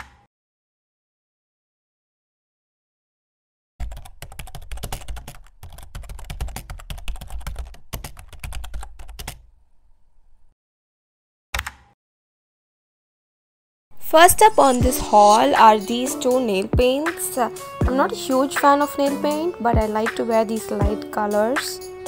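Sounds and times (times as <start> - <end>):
computer keyboard typing: 3.8 - 9.4.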